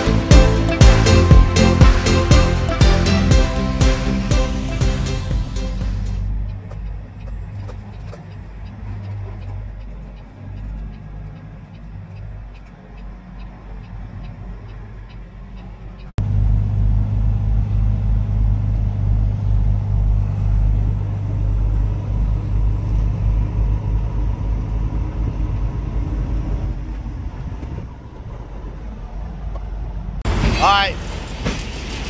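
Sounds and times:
diesel truck engine drone: 0.0s - 32.0s
in-car driving noise: 0.0s - 32.0s
faint regular ticks: 6.4s - 16.1s.

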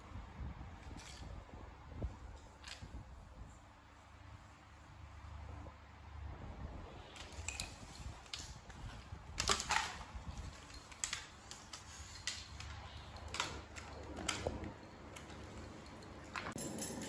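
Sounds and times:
plastic toys on tiled floor: 0.1s - 17.0s.

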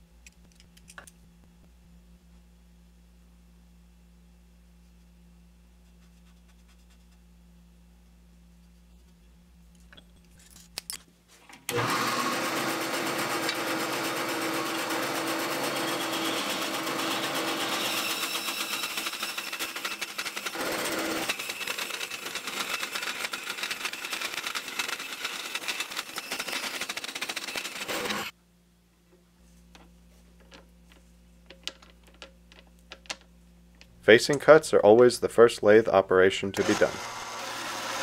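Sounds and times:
bandsaw cutting metal: 11.7s - 28.3s, 36.6s - 38.0s.

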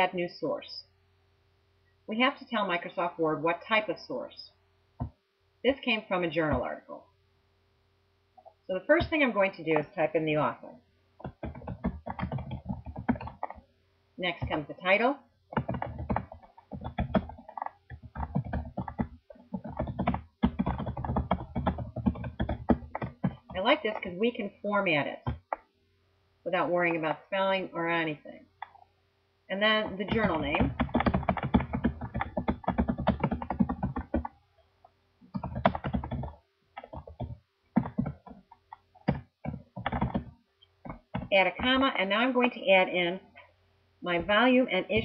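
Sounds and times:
keyboard typing clicks: 11.2s - 13.6s, 15.5s - 24.1s, 29.8s - 34.4s, 35.3s - 41.8s.

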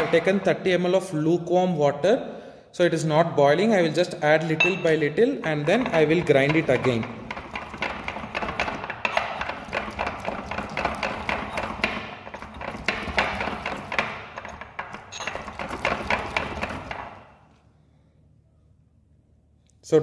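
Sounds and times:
pestle scraping in mortar: 5.5s - 17.3s.

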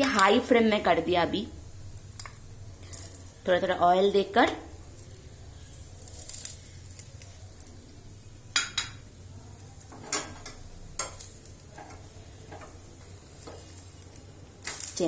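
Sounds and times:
flatbread sizzling in pan: 0.0s - 15.0s
metal utensils clinking on pan: 9.9s - 12.8s.

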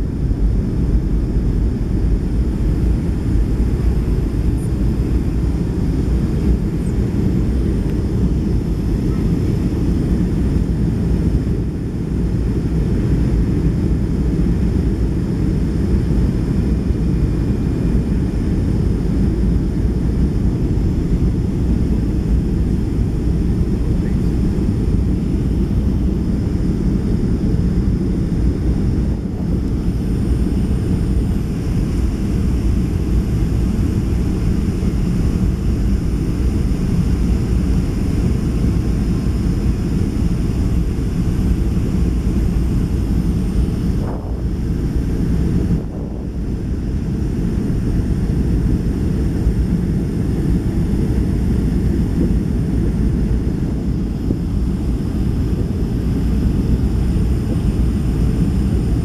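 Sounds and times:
aircraft cabin engine rumble: 0.0s - 59.0s
faint high whine: 0.0s - 59.0s.

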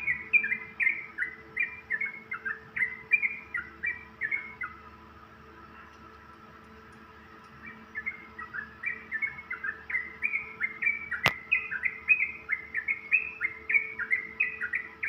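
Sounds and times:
faint steady hum: 0.0s - 15.0s
bird singing fast chirps: 7.6s - 15.0s.

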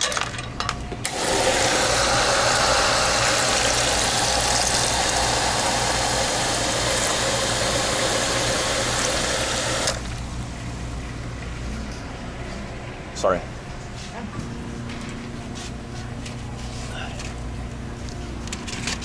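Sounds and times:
fizzing soda pouring into cup: 1.1s - 10.1s.

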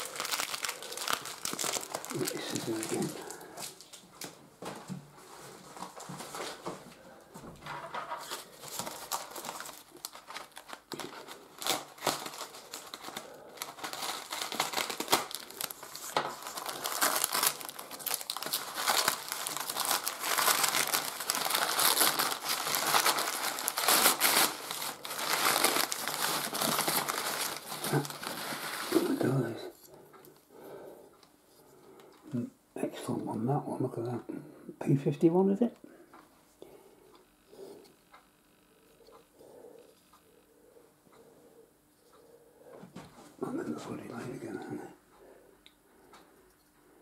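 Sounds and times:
packing paper crumpling: 0.0s - 4.4s, 7.8s - 29.8s.

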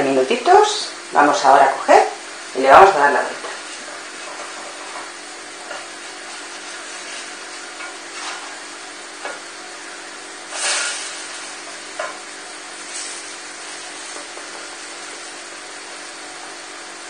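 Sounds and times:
frying sizzle: 0.0s - 17.0s
plastic spatulas scraping on a griddle: 3.4s - 8.6s, 10.5s - 12.1s.

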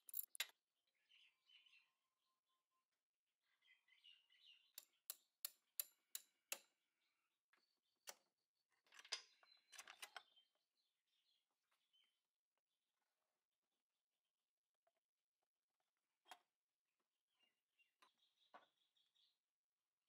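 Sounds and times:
hand tool metallic clicks: 0.0s - 0.5s.

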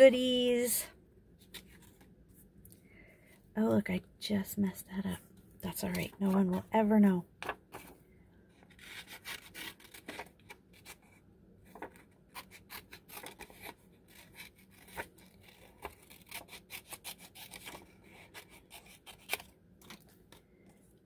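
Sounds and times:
paper sheet rustling and crinkling: 11.6s - 12.2s.

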